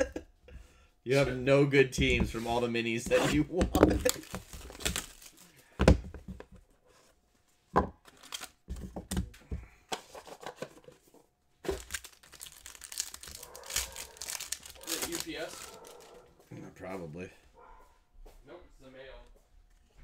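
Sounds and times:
foil wrapper crinkling and tearing: 3.8s - 5.7s, 8.0s - 8.7s, 11.6s - 16.2s.

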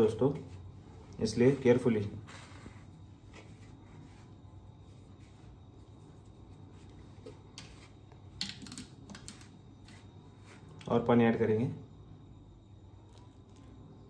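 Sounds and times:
hand rubbing and crumbling flour: 9.2s - 11.0s.

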